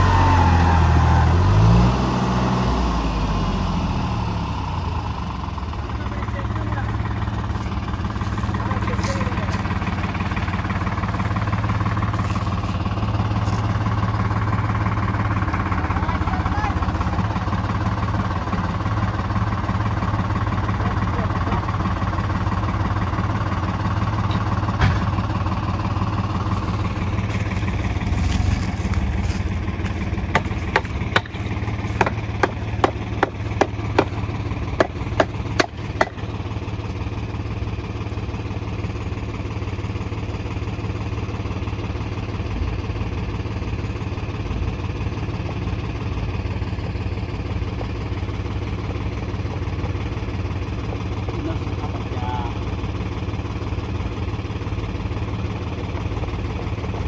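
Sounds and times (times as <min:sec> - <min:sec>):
tractor diesel engine idling: 0:00.0 - 0:57.0.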